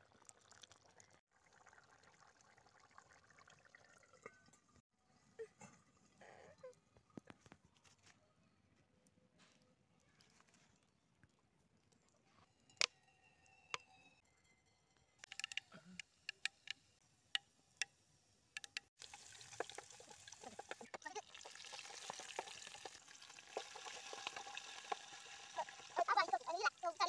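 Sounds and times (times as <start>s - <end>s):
hot oil popping: 15.2s - 27.0s
seeds sizzling in oil: 16.1s - 27.0s.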